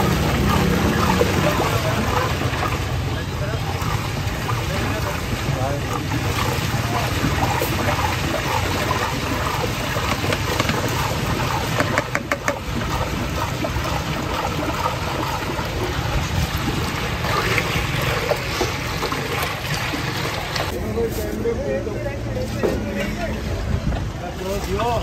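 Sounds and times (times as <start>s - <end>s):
liquid sloshing in a steel pot: 0.0s - 20.8s.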